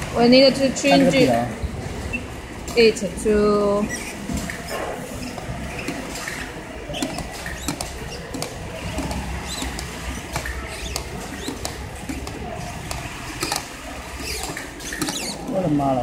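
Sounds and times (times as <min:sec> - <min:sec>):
knob clicking and scratching: 0:04.0 - 0:15.6.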